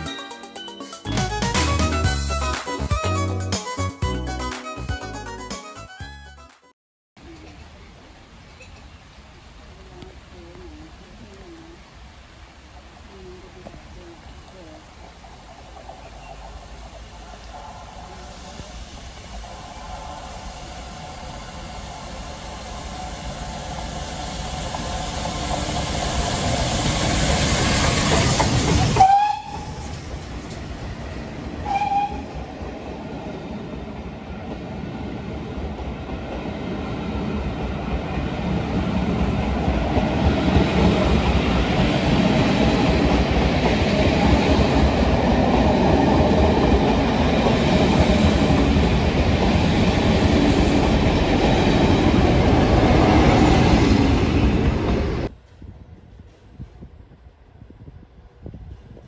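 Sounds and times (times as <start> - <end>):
steam locomotive passing: 7.3 - 59.0
steam whistle blasts: 29.0 - 29.8, 31.6 - 32.3.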